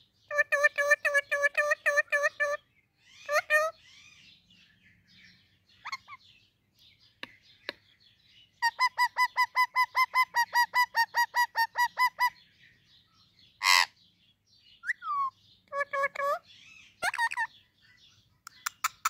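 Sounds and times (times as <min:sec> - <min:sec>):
parrot calling: 0:00.3 - 0:04.2, 0:05.8 - 0:06.2, 0:08.6 - 0:12.4, 0:13.6 - 0:14.0, 0:14.8 - 0:17.5
parrot screeching: 0:17.0 - 0:17.5.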